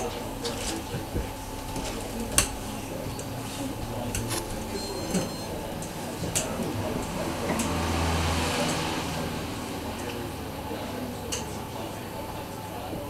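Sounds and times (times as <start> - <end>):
washing machine hum: 0.0 - 13.0
faint high beeps: 4.6 - 5.6.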